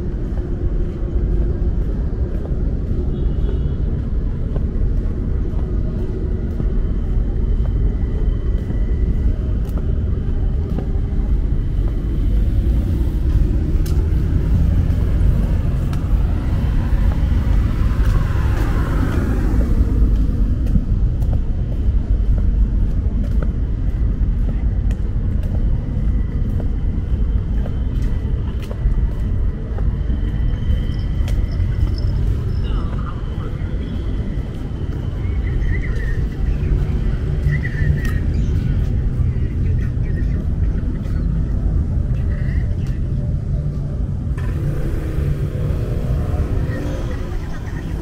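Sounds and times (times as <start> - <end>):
low rumble of road traffic: 0.0 - 48.0
vehicle passing close by: 44.4 - 48.0.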